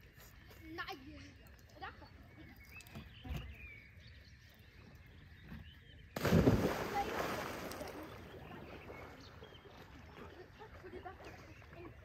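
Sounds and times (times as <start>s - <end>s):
person splashing into water: 6.2s - 8.3s
churning water: 6.2s - 12.0s.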